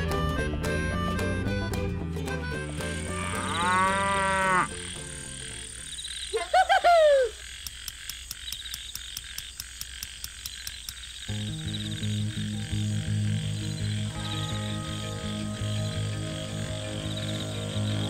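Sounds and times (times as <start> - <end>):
animal call rising and falling: 3.0 - 4.8
cow mooing: 3.0 - 4.8.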